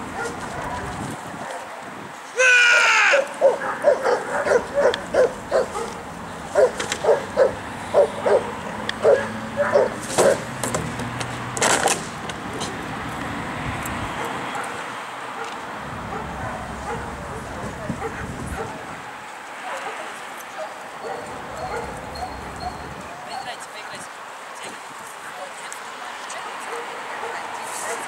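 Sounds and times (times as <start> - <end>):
dog barking: 0.2 - 1.7, 2.7 - 6.0, 6.6 - 10.5, 14.2 - 18.8, 19.6 - 23.5, 26.7 - 28.0.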